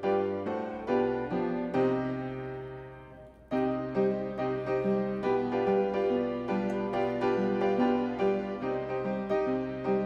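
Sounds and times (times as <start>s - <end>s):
instrumental music with held notes: 0.0s - 10.0s.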